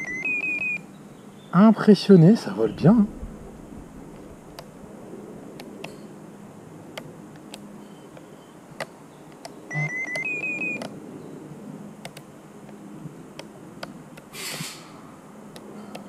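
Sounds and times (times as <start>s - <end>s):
short electronic beeps: 0.0s - 0.8s, 9.7s - 10.8s
faint steady hum: 2.2s - 16.0s.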